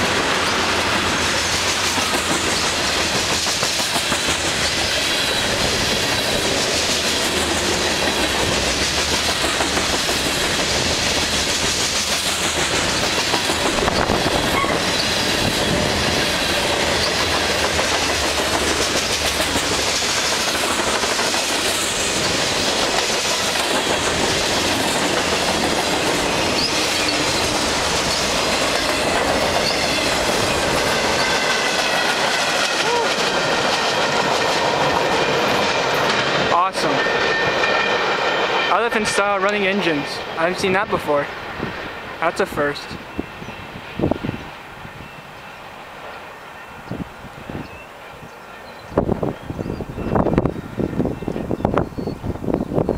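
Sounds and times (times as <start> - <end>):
train wheels clacking over joints: 0.0 - 40.9
wheel squeal: 14.0 - 15.8.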